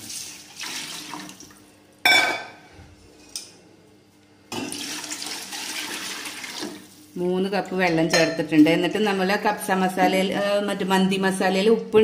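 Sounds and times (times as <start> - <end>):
water pouring into metal pot: 4.7 - 6.8.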